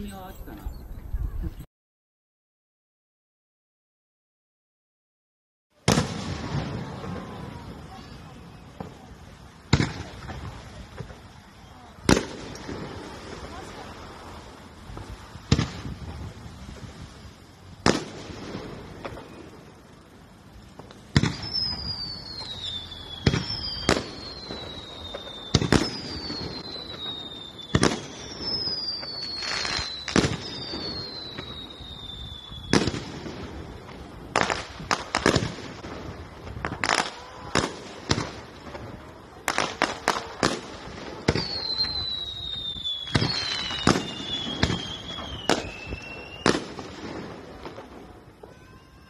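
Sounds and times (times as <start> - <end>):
whistling firework shells: 5.8 - 49.0
firework shells bursting: 12.0 - 48.6.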